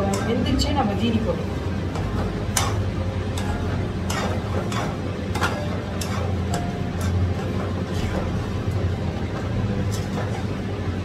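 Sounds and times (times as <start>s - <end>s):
steady low hum: 0.0s - 11.0s
spoon clinking and scraping metal pan: 1.9s - 8.6s.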